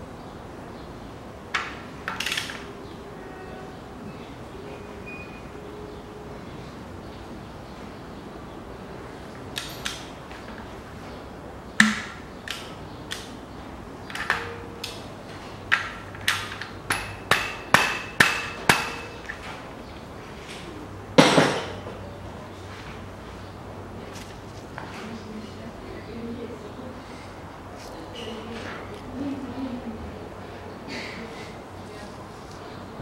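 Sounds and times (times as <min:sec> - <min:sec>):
metallic knocks of hand tools: 0:11.8 - 0:13.2, 0:15.7 - 0:19.4.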